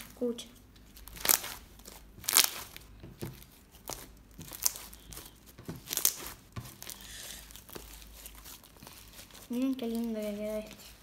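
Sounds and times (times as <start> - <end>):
slime crackling pops: 1.1 - 9.0.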